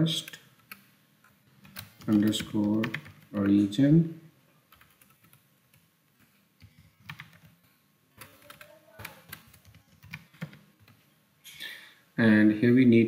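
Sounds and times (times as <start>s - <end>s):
computer keyboard typing: 1.6s - 3.6s, 4.7s - 5.8s, 6.6s - 7.6s, 8.2s - 11.0s.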